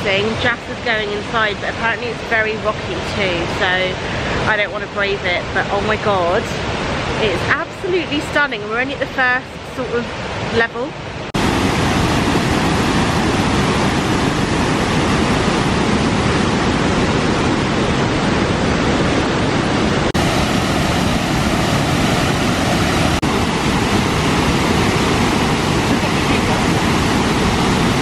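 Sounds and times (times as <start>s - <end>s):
waterfall rushing: 11.3s - 28.0s.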